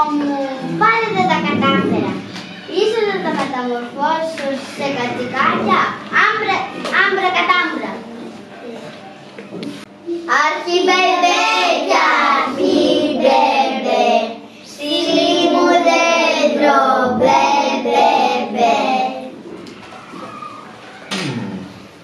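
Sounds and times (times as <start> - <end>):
children singing a carol: 10.8 - 19.3.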